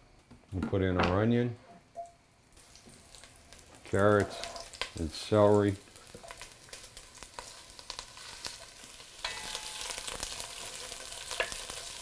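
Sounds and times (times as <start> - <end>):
vegetables sizzling in oil: 2.5 - 12.0
wooden spoon stirring and scraping: 3.9 - 4.8.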